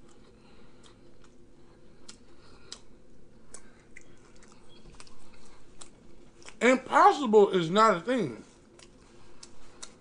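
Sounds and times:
low steady hum: 0:00.0 - 0:10.0
wet mouth clicks and lip smacks: 0:03.5 - 0:05.2.

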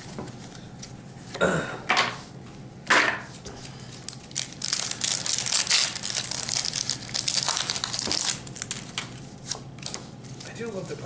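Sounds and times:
foil wrapper crinkling and tearing: 0:03.8 - 0:11.0.

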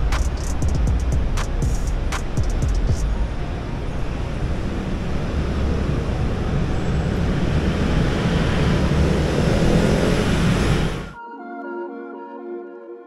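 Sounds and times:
motorcycles passing: 0:03.3 - 0:11.2.

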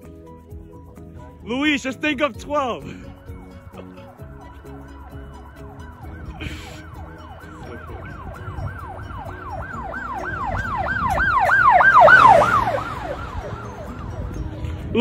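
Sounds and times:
siren fast yelp: 0:04.9 - 0:13.9.

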